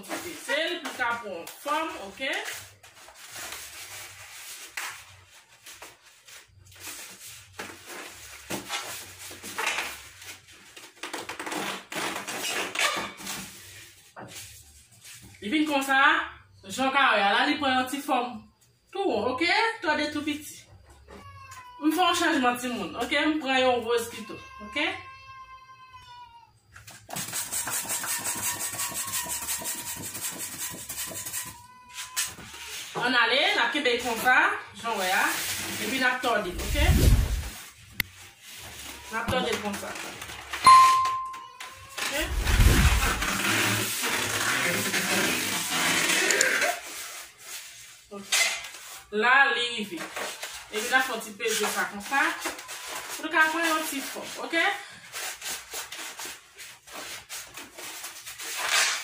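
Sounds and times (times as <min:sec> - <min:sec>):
balloon rubbing and squeaking: 0:11.0 - 0:12.9, 0:27.1 - 0:32.8, 0:36.4 - 0:37.7, 0:42.0 - 0:47.3.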